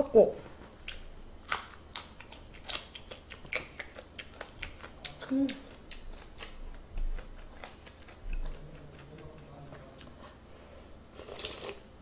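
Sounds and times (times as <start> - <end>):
slurping broth: 11.2 - 11.9.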